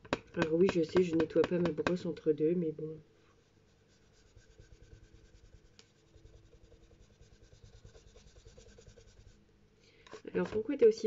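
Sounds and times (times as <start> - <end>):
brush rubbing on paper: 3.2 - 9.4.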